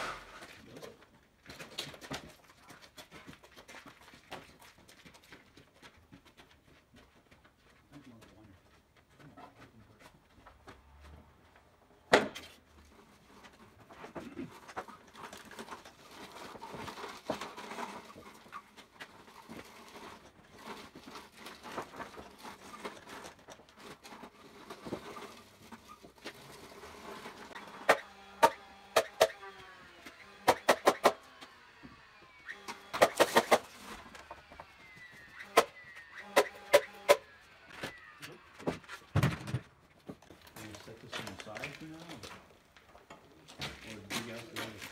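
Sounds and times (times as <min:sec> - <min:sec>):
nail gun firing: 0:27.8 - 0:29.4, 0:30.4 - 0:31.3, 0:32.5 - 0:33.7, 0:35.4 - 0:37.3.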